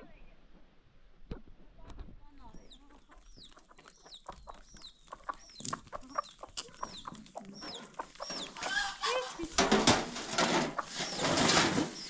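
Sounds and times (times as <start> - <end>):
chickens clucking: 2.4 - 12.0
loud chicken call: 8.4 - 9.8.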